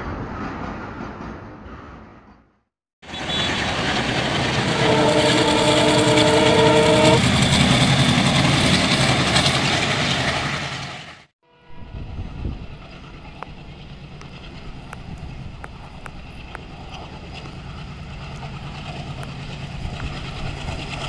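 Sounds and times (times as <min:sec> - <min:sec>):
freight train rumble: 0:00.0 - 0:21.0
train horn chord: 0:03.1 - 0:03.8, 0:04.5 - 0:07.4, 0:11.5 - 0:12.6
train coaches rolling: 0:03.1 - 0:21.0.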